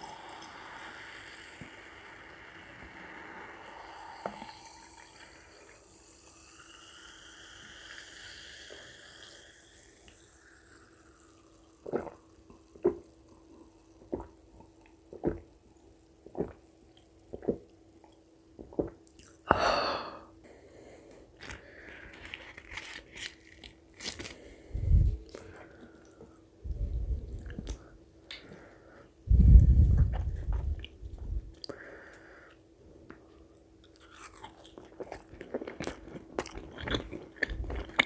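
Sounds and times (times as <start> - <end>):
dull low thumps: 29.3 - 31.5
close chewing: 33.9 - 38.0.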